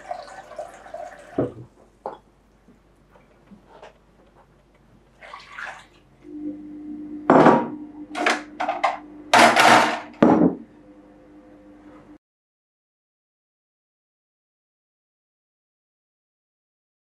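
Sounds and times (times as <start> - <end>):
faint steady hum: 5.8 - 12.2.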